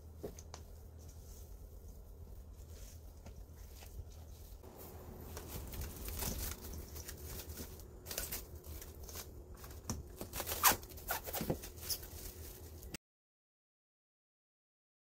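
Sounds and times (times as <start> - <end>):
plastic cling wrap crinkling: 4.6 - 13.0.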